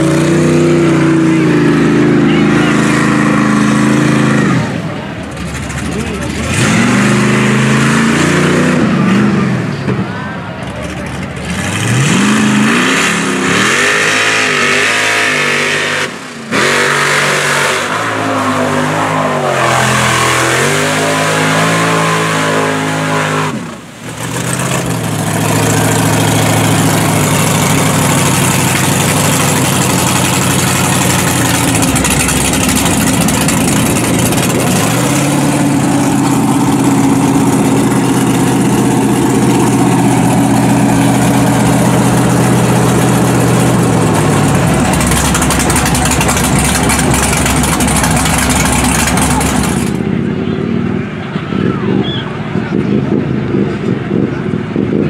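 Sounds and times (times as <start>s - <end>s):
tires churning through mud: 0.0s - 55.0s
truck engine revving: 0.0s - 55.0s.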